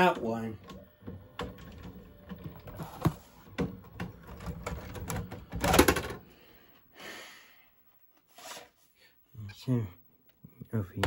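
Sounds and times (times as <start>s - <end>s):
video cassette player clicks and clatter: 0.0s - 6.2s.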